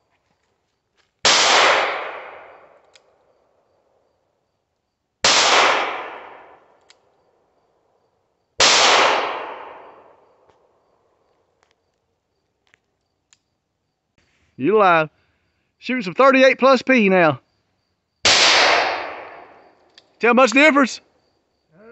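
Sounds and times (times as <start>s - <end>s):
gunshot echo: 1.2s - 2.7s, 5.2s - 6.6s, 8.6s - 10.2s, 18.2s - 19.7s.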